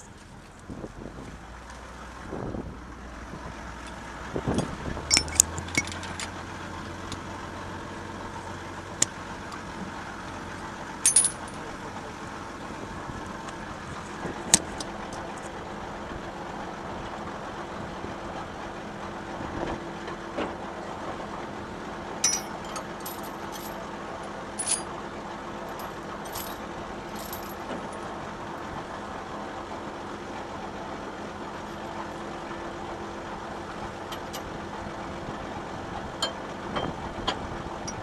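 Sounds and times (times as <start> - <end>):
tractor diesel engine idling: 0.0 - 38.0
chain links clinking: 4.6 - 6.3, 11.0 - 11.6, 22.2 - 23.8, 24.6 - 24.9, 25.7 - 28.0.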